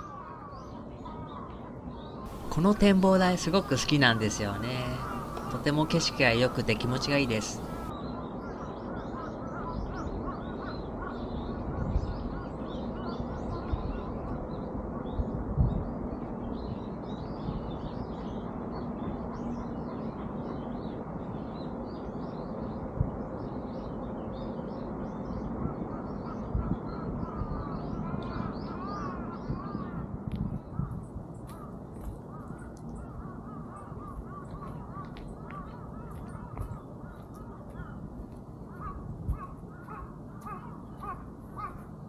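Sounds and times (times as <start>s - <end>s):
birds chirping and twittering: 0.0s - 42.0s
background rush: 2.3s - 7.9s.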